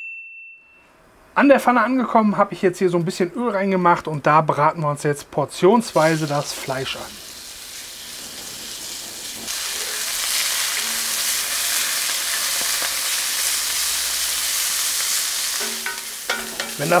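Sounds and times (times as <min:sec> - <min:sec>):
meat sizzling in frying pan: 0:05.9 - 0:17.0.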